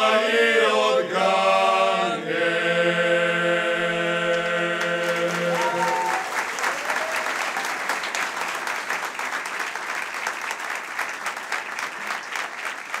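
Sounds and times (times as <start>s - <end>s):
audience applauding: 4.4s - 13.0s.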